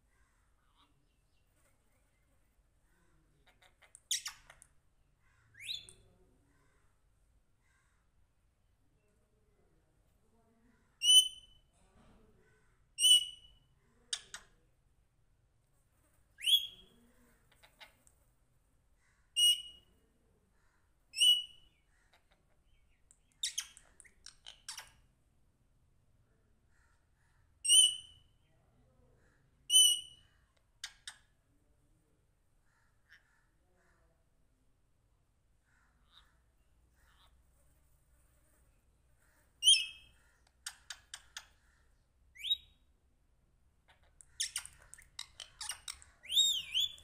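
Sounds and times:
parakeet clicks and rasps: 0:03.5 - 0:04.8, 0:14.1 - 0:14.6, 0:23.0 - 0:25.0, 0:30.8 - 0:31.3, 0:40.4 - 0:41.6, 0:43.9 - 0:47.0
parakeet whistling calls: 0:45.6 - 0:47.0.

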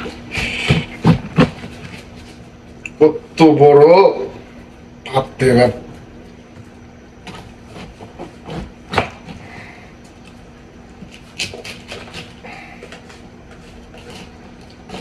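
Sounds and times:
knife cutting cabbage: 0:07.2 - 0:09.4, 0:11.0 - 0:15.0.

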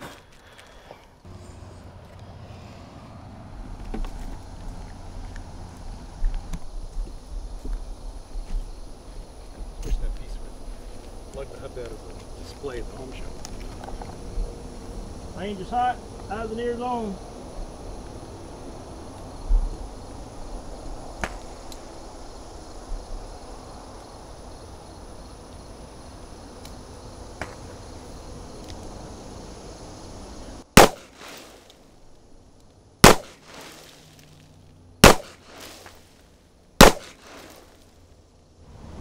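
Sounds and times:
outdoor background noise: 0:00.0 - 0:39.0
handgun shots with echo: 0:30.8 - 0:31.4, 0:33.0 - 0:33.6, 0:35.0 - 0:35.8, 0:36.8 - 0:37.5.

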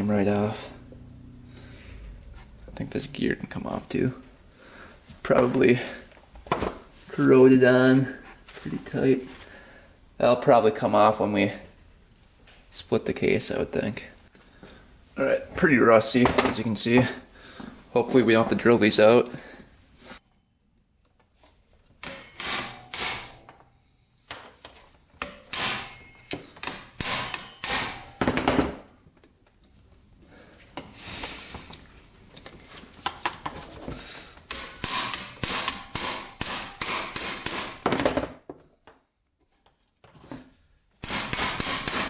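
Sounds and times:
tool striking metal screws: 0:22.0 - 0:23.6, 0:25.2 - 0:28.5, 0:34.5 - 0:38.1, 0:41.0 - 0:42.0.

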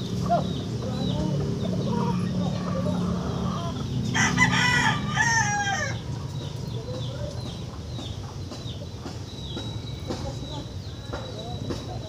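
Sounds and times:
rooster crowing: 0:02.8 - 0:06.0.

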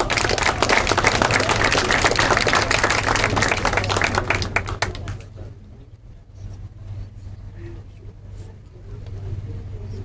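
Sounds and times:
crowd applauding: 0:00.0 - 0:05.3.

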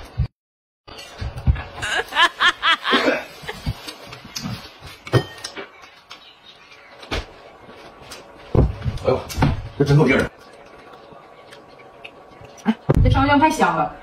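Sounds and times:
person giggling: 0:01.6 - 0:03.8.

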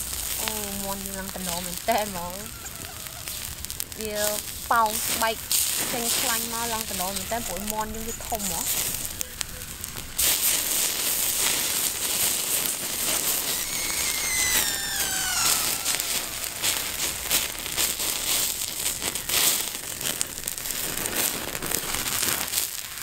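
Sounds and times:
fat dripping into flames: 0:00.0 - 0:23.0
wood fire crackling and popping: 0:00.0 - 0:23.0
thin falling whistle: 0:13.2 - 0:18.4.

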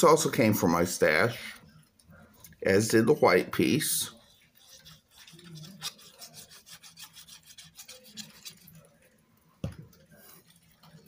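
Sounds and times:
glue bottle tip scraping cardstock: 0:04.5 - 0:08.8.

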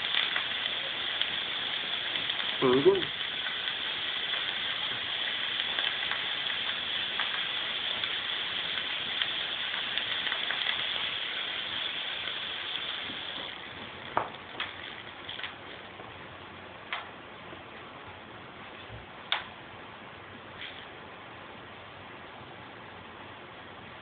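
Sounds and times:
fog machine hissing: 0:00.0 - 0:16.2.

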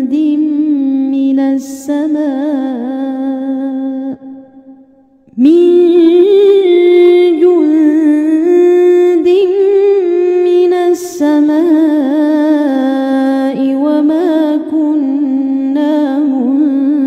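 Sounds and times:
woman reciting melodic chant: 0:00.0 - 0:04.1, 0:05.4 - 0:17.0.

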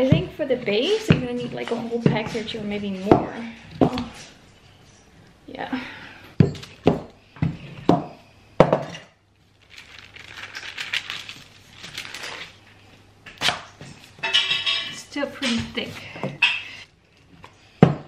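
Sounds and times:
baking paper crinkling: 0:09.4 - 0:14.8.

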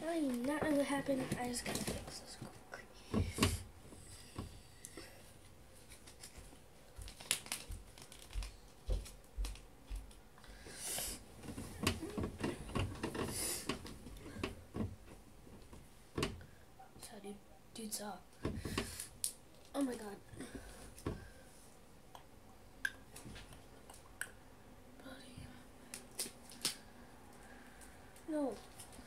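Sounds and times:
cards and binder pages rustling: 0:05.8 - 0:10.1.

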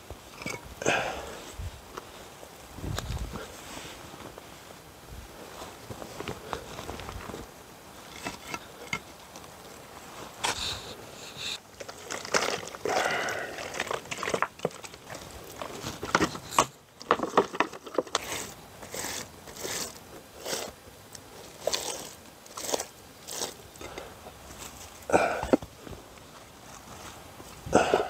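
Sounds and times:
stone shifting on dirt: 0:00.1 - 0:01.4, 0:06.0 - 0:09.6, 0:11.6 - 0:28.0
hands scraping damp soil: 0:17.3 - 0:28.0.

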